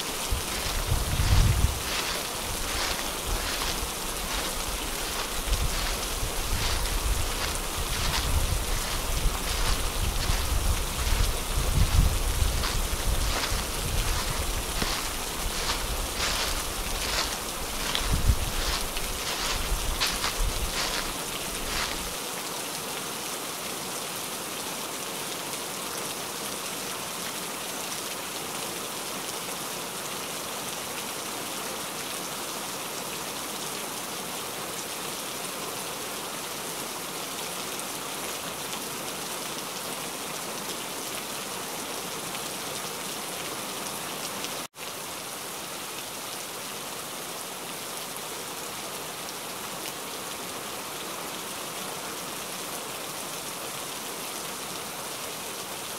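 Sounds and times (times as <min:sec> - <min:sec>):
heavy rain falling: 0:00.0 - 0:55.9.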